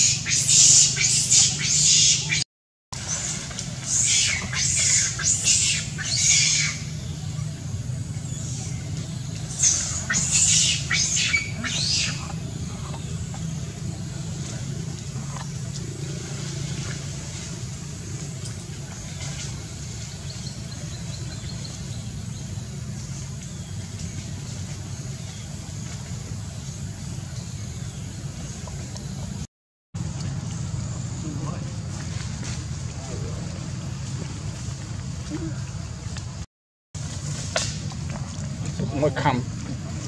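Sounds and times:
low outdoor rumble: 3.0s - 40.0s.

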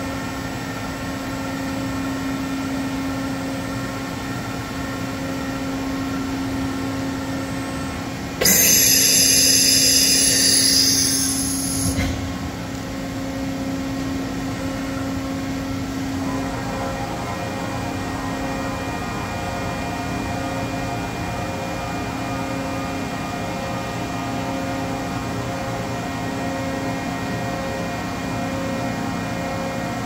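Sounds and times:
milling machine humming: 8.4s - 12.8s.

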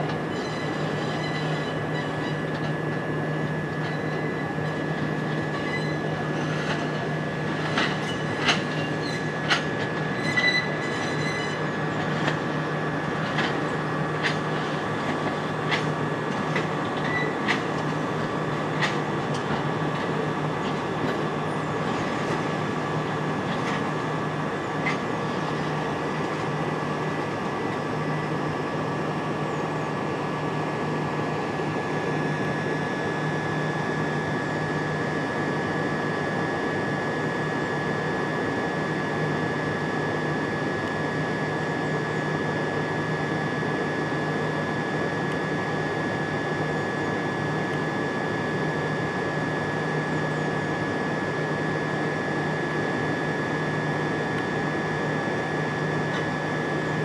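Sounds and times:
high-pitched whine: 0.0s - 18.8s
electric train equipment hum: 0.0s - 57.0s.

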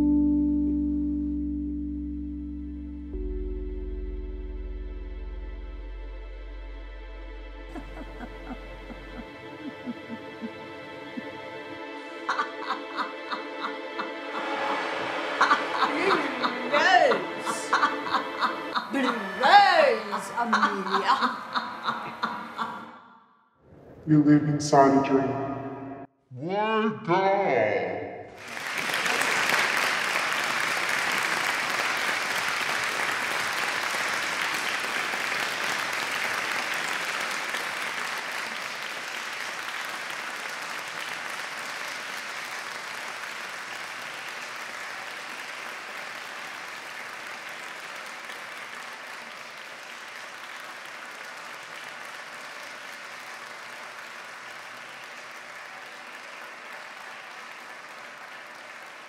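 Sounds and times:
audience applause: 7.7s - 22.9s, 28.4s - 59.0s.

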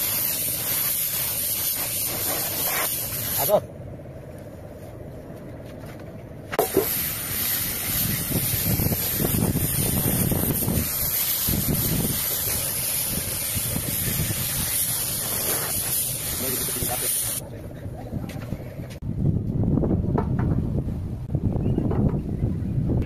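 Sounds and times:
spray gun hissing: 0.0s - 3.6s, 6.6s - 17.4s.

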